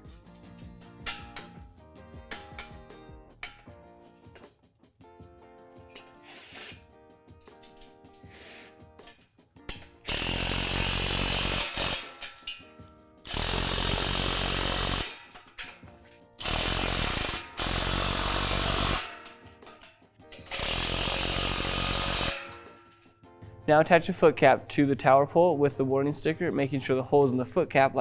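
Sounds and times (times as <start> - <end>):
faint background music: 0.0 - 28.0
power driver driving bolts: 9.0 - 23.1.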